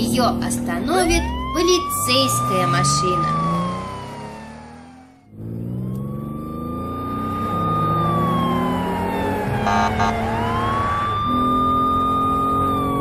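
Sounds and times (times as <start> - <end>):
car engine revving: 0.0 - 13.0
police siren wailing: 0.0 - 13.0.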